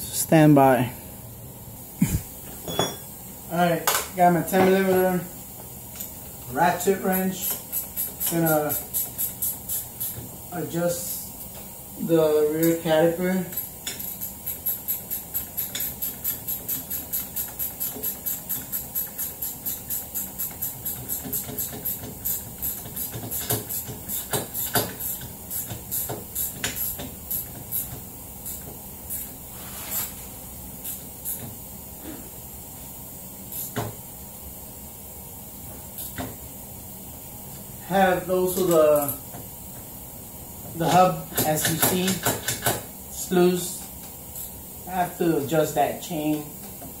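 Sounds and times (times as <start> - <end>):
ratchet wrench clicking: 7.1 - 10.2, 13.4 - 29.3, 41.3 - 42.8.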